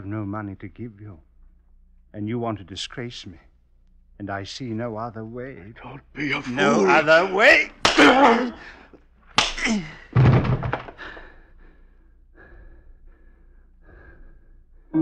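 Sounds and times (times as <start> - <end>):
man crying out: 6.3 - 8.7
man groaning: 7.9 - 8.7
heavy thud: 10.2 - 11.0
faint ragged gasping breaths: 10.9 - 15.0.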